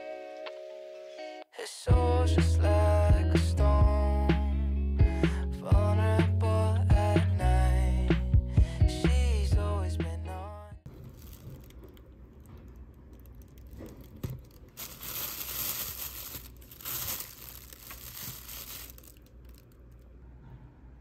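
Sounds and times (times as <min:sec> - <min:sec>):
plastic bag crinkling: 0:10.9 - 0:20.0.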